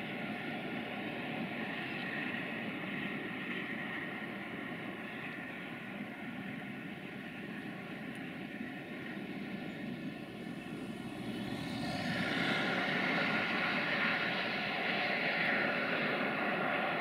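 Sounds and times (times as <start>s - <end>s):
diesel locomotive engine drone: 0.0s - 17.0s
loud rushing noise: 10.2s - 15.0s.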